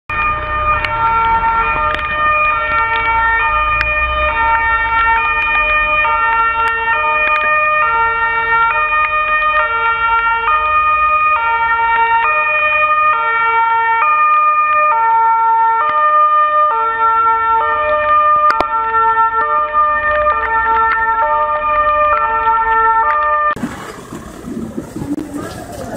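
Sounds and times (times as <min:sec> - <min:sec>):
fire engine two-tone siren: 0:00.1 - 0:24.0.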